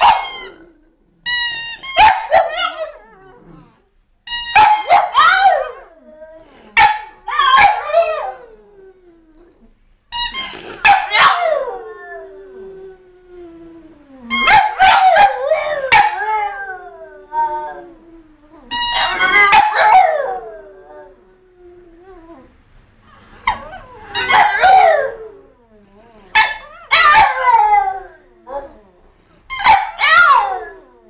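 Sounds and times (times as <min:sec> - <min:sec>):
dogs yelping and howling: 0:00.0 - 0:00.7, 0:01.8 - 0:03.5, 0:04.5 - 0:08.8, 0:10.8 - 0:21.2, 0:23.3 - 0:29.0, 0:29.6 - 0:31.0.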